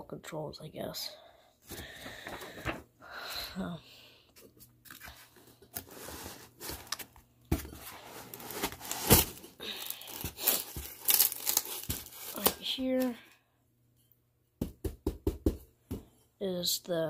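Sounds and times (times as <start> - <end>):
packing material crunching: 7.9 - 12.7.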